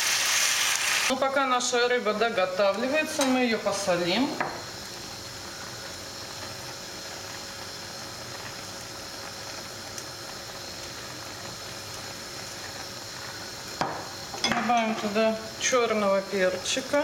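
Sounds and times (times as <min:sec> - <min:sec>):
fish and onion sizzling in a pan: 0:00.0 - 0:17.0.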